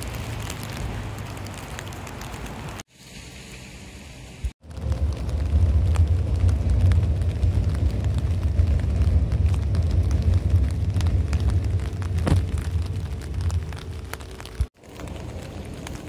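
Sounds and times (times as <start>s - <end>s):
light ticks of rain: 0.0s - 16.0s
wind buffeting microphone: 4.6s - 16.0s.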